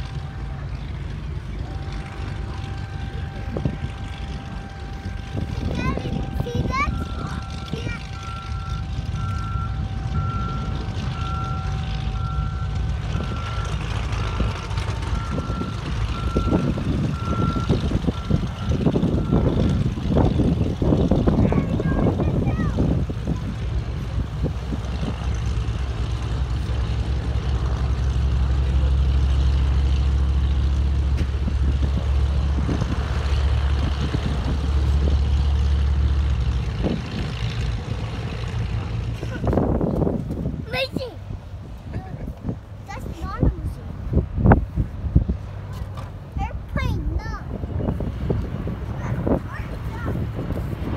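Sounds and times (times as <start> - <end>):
reversing beeper: 0.0 - 19.9
propeller plane engines rumbling: 0.0 - 50.9
wind buffeting microphone: 1.0 - 28.3, 29.4 - 50.9.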